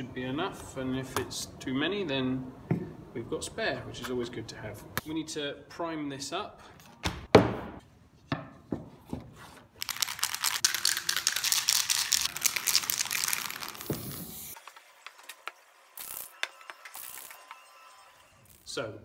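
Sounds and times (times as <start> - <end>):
spray can rattling hiss: 9.8 - 14.6, 16.0 - 17.4.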